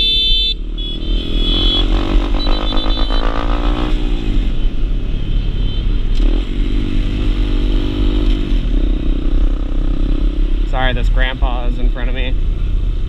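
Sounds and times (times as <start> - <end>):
motorcycle engine accelerating: 0.8 - 4.6, 6.0 - 12.2.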